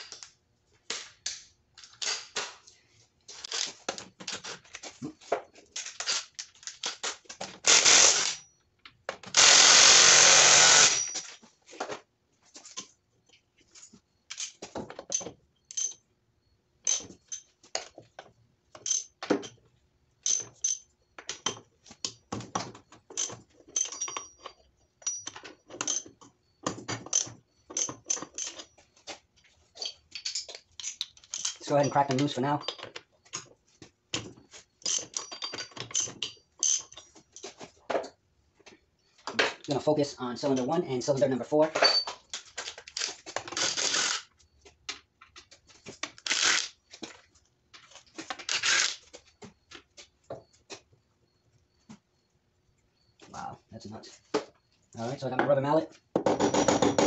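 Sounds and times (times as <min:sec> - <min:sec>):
metal tools clinking on engine: 0:14.1 - 0:16.1, 0:16.8 - 0:18.1, 0:18.8 - 0:19.6, 0:20.2 - 0:28.9, 0:29.7 - 0:33.4, 0:34.7 - 0:37.6, 0:40.4 - 0:43.7.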